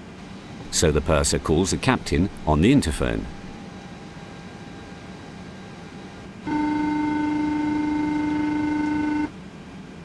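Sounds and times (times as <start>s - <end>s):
aircraft cabin hum: 0.0s - 3.9s
cockpit call buzzer tone: 6.4s - 9.4s.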